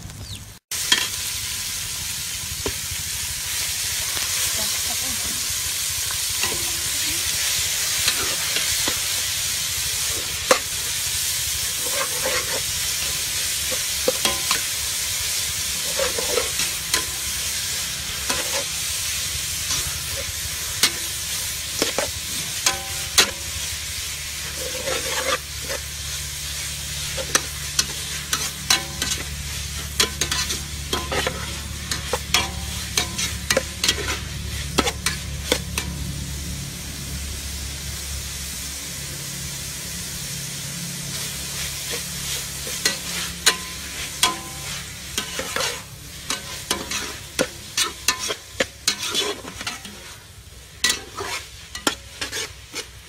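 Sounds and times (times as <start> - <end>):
meat sizzling in hot oil: 0.0 - 53.0
metal spatula scraping a pot: 6.4 - 36.0, 41.8 - 53.0.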